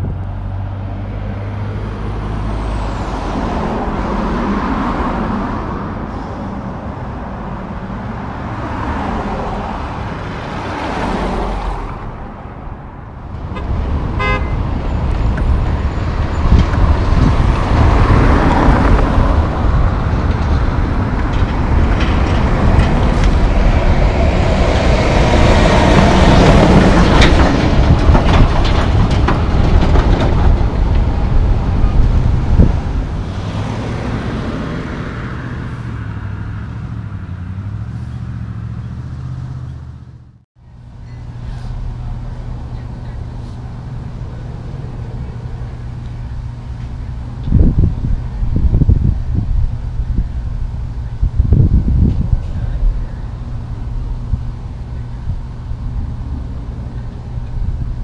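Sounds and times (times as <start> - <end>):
road traffic passing: 0.0 - 58.0
diesel truck engine running: 9.3 - 58.0
horn toot: 13.5 - 14.8.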